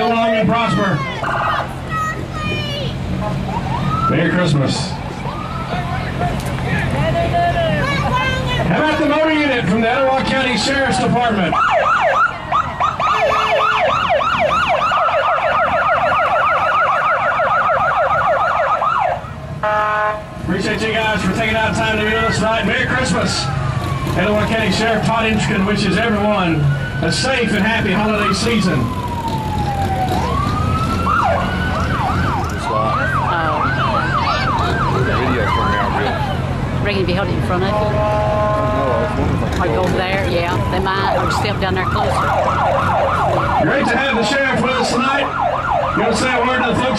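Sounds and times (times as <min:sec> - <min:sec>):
police siren yelp: 0:00.0 - 0:01.8, 0:03.3 - 0:06.3, 0:07.8 - 0:20.2, 0:21.0 - 0:36.6, 0:40.2 - 0:46.9
steady horn-like tone: 0:37.5 - 0:39.4.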